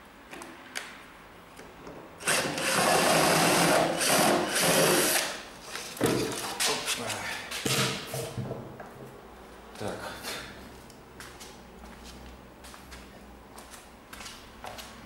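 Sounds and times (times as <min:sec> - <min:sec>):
electric screwdriver running: 0:02.2 - 0:05.4.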